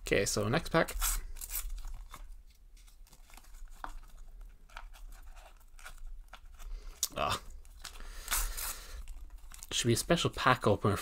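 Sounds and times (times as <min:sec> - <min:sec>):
paper packet tearing: 0:00.9 - 0:02.2, 0:07.2 - 0:09.9.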